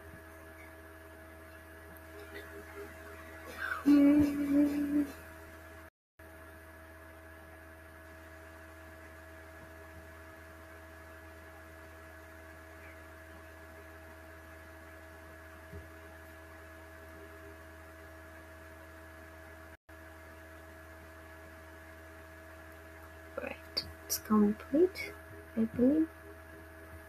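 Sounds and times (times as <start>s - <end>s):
electrical hum: 0.0s - 27.0s.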